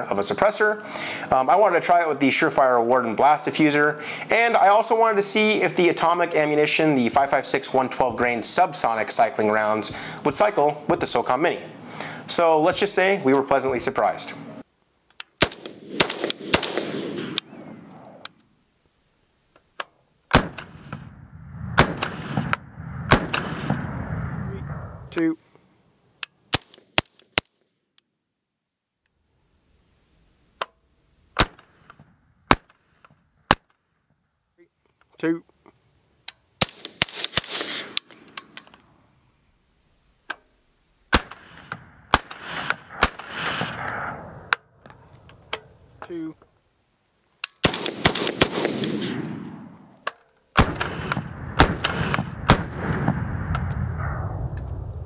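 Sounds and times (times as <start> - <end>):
gunshots with echo: 15.4 - 18.2, 21.8 - 24.9, 36.6 - 38.1, 47.6 - 50.0, 50.6 - 54.3.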